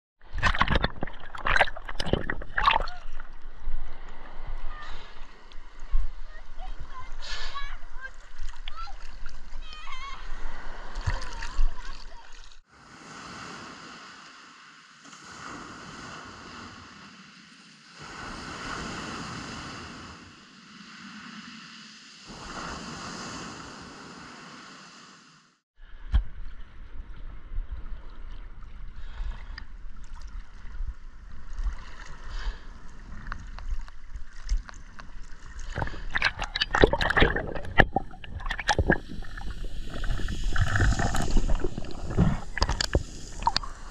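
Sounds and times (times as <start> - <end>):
water splashing and sloshing: 0.2 - 25.2, 25.9 - 43.9
waves washing in and out: 0.2 - 43.9
underwater clicks and knocks: 0.3 - 3.3, 35.7 - 39.5, 40.6 - 43.7.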